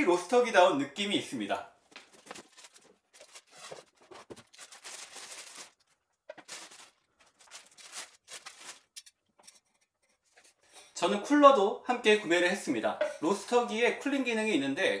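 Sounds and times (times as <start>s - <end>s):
plastic wrapping crinkling: 1.9s - 9.2s.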